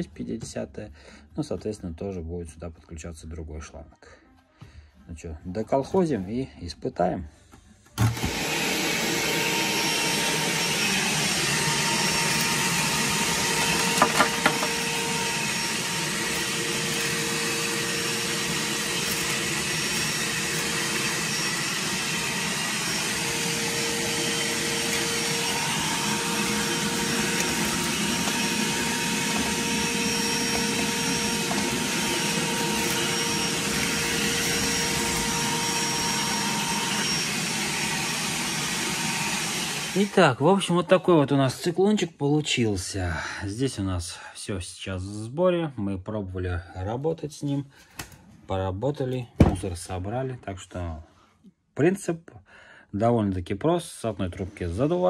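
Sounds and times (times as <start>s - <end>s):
vacuum cleaner whining: 8.0s - 40.4s.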